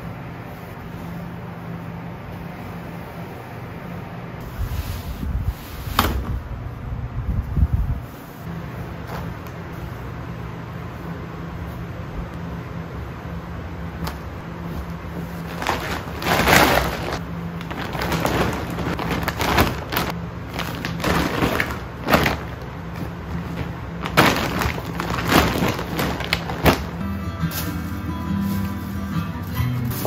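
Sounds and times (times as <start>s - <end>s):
fabric rustling: 14.6s - 29.2s
plastic woven bag crinkling: 15.2s - 29.0s.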